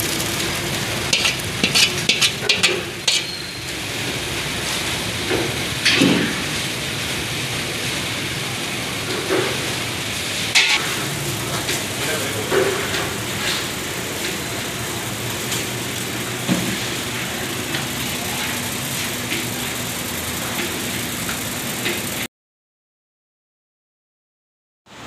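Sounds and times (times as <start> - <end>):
faint voices: 12.0 - 13.2.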